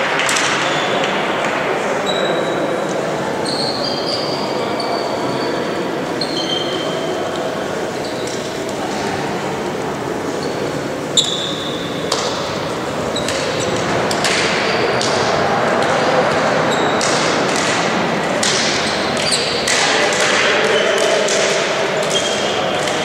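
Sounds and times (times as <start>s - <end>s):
crowd talking in echoing hall: 0.0s - 23.0s
sneaker squeaks on court floor: 3.4s - 8.6s, 10.3s - 14.9s, 16.7s - 17.3s, 18.8s - 19.7s.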